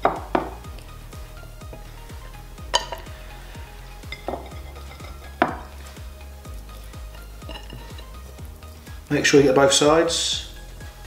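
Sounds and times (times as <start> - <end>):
background music with steady beat: 0.0 - 11.0
hands clinking ceramic plates: 2.8 - 3.1, 4.0 - 5.7, 7.4 - 8.2.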